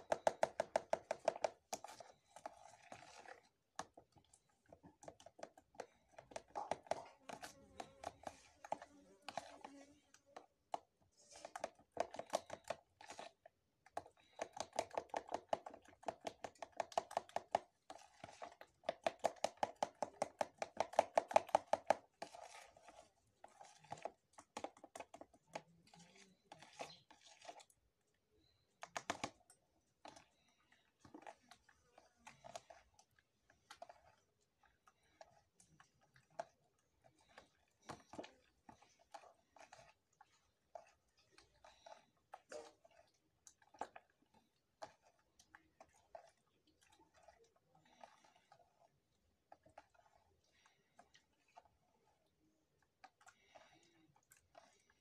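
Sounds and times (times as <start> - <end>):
batter squelching by hand: 0.0 - 55.0.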